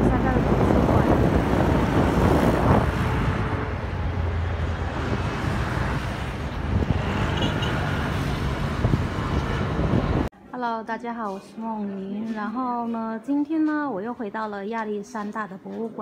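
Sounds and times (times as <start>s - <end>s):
road traffic rumble: 0.0s - 10.3s.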